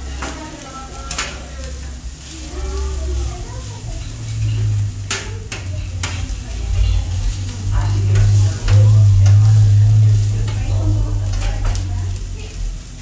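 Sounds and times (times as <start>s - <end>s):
food sizzling: 0.0s - 13.0s
loud low hum: 0.8s - 13.0s
metal blade scraping griddle: 3.7s - 11.8s.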